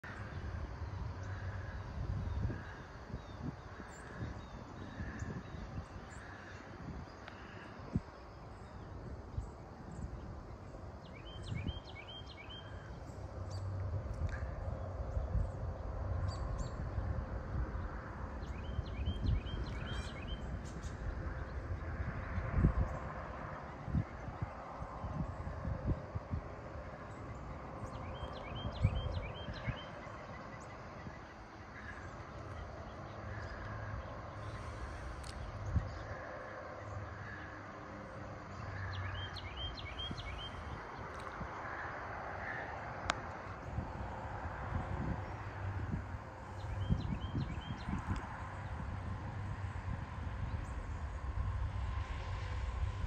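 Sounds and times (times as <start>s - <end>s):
bird chirping: 2.3s - 14.5s, 18.4s - 21.5s, 27.0s - 36.1s, 38.5s - 41.4s, 46.5s - 48.7s.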